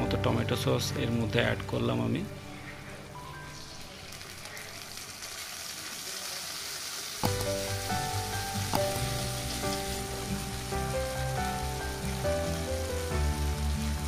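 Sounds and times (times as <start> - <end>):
vegetables sizzling in hot oil: 1.9 - 14.0
background music with steady beat: 7.2 - 14.0.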